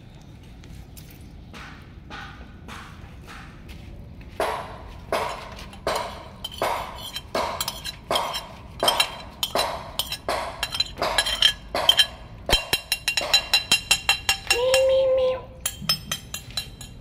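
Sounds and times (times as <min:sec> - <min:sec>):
glassy clinks: 0:15.6 - 0:17.0.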